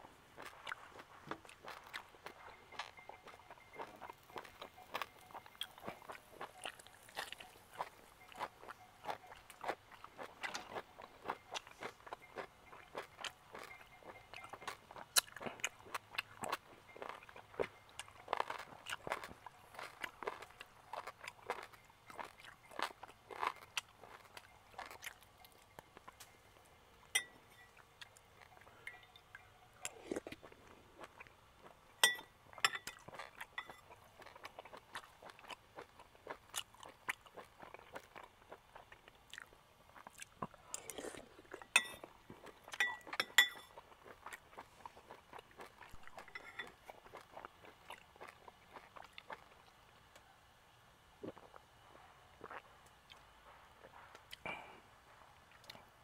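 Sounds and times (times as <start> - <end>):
person chewing and crunching food: 0.0 - 50.4, 51.0 - 56.0
metal spoon clinking on bowl: 27.1 - 27.8, 28.4 - 29.6, 32.0 - 33.9, 41.7 - 42.1, 42.8 - 43.8, 46.2 - 46.8.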